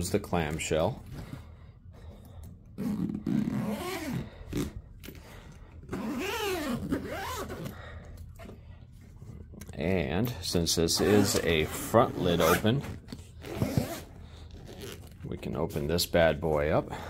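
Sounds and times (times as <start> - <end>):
suitcase zipper zipping: 2.8 - 4.8, 5.9 - 7.7, 11.0 - 15.1.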